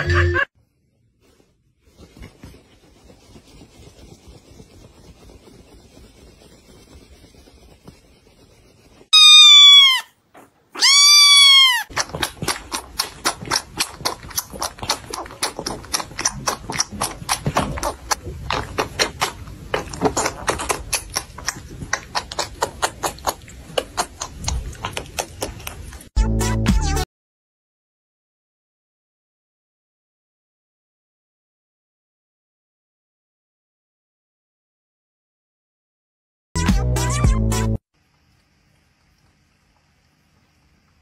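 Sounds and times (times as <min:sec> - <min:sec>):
kitten mewing: 0:09.2 - 0:10.1, 0:10.8 - 0:13.6
kitten suckling at a bottle: 0:10.8 - 0:26.1.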